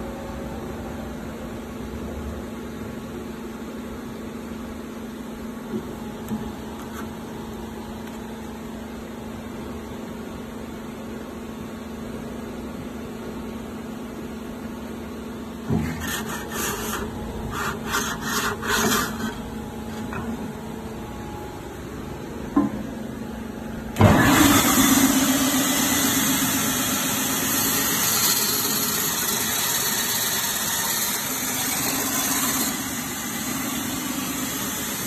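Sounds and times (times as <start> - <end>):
sanding machine motor hum: 15.7 - 20.5, 24.0 - 35.0
wood rasping on sanding belt: 15.8 - 20.1.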